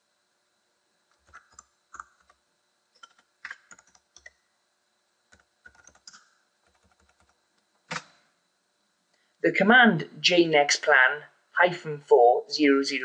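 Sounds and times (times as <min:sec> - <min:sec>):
keyboard typing clicks: 0:01.1 - 0:02.4, 0:03.0 - 0:04.4, 0:05.3 - 0:08.2.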